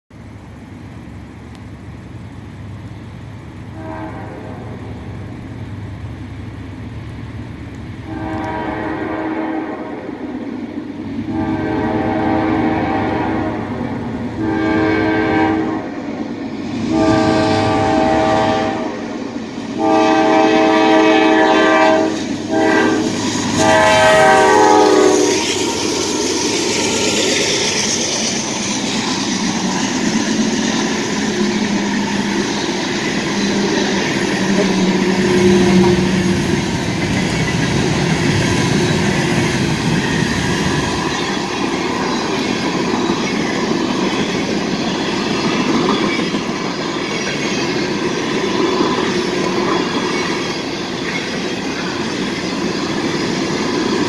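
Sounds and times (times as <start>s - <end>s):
locomotive engine rumble: 0.1s - 50.7s
locomotive air horn blasts: 3.8s - 5.0s, 8.0s - 9.9s, 11.3s - 13.7s, 14.4s - 15.9s, 16.9s - 19.0s, 19.8s - 25.6s, 33.4s - 36.7s.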